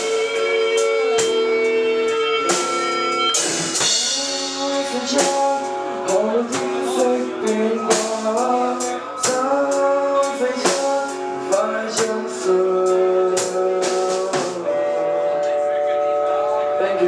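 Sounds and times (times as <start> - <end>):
drum kit beat: 0.0 - 15.6
electric guitars: 0.0 - 17.0
person singing: 3.8 - 17.0.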